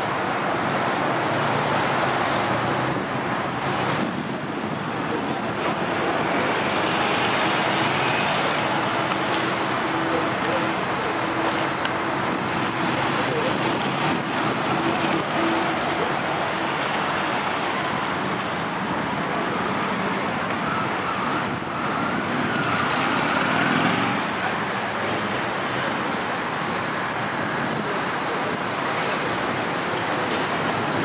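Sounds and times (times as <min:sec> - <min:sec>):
steady rushing noise: 0:00.0 - 0:20.6.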